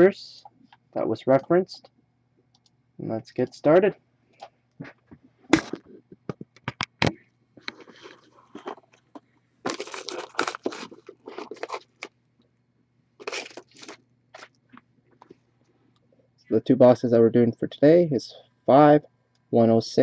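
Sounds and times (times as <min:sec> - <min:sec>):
cardboard rustling and scraping: 0:09.7 - 0:12.1.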